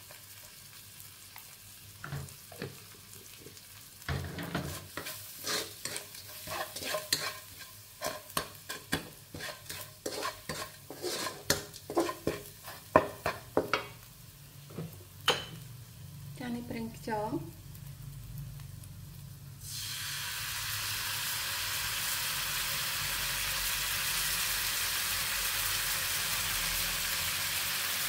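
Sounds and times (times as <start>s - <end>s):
paste sizzling in oil: 0.0s - 15.5s, 19.5s - 28.0s
spatula scraping a wok: 4.1s - 14.0s.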